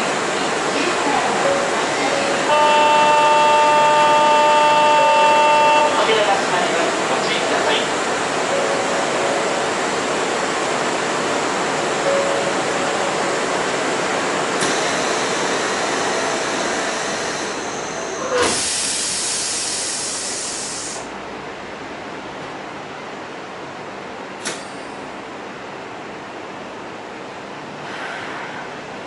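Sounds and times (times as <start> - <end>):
subway car interior noise: 0.0 - 29.0
compressed air hissing: 16.6 - 21.1
click: 24.4 - 24.7.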